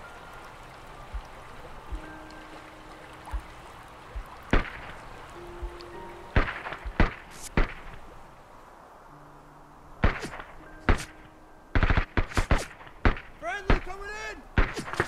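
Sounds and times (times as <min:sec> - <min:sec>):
gunshots: 0:06.4 - 0:08.0, 0:10.0 - 0:11.2, 0:11.8 - 0:14.0, 0:14.6 - 0:15.0.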